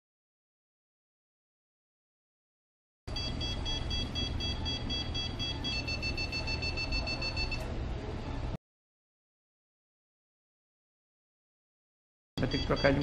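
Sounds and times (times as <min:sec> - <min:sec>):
pulsed electronic beeping: 0:03.1 - 0:07.6, 0:12.4 - 0:13.0.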